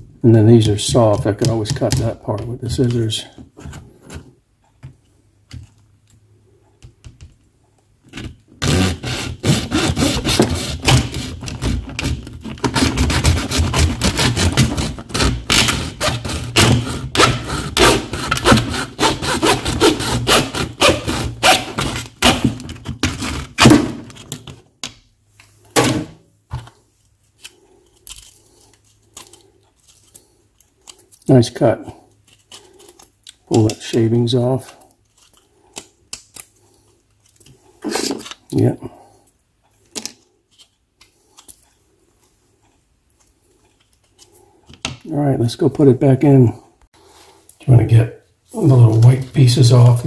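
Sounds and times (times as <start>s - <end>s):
hacksaw cutting plastic: 0.9s - 3.0s, 8.1s - 24.3s.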